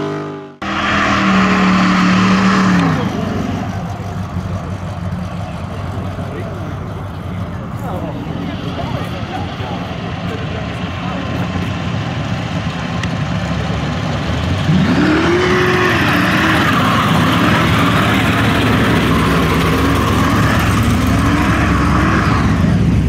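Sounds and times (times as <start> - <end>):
engine rumbling and revving: 0.0 - 23.0
tyres squealing: 14.7 - 22.7.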